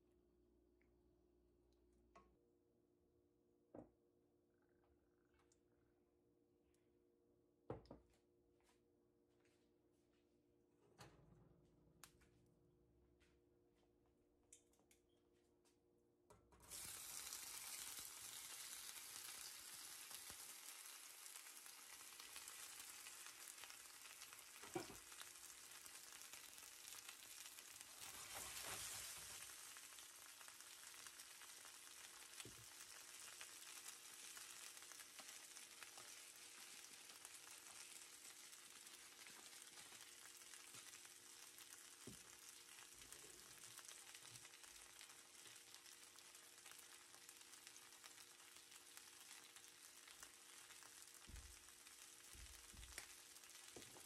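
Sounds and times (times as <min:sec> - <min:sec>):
potato wedges sizzling in oil: 0:16.6 - 0:54.0.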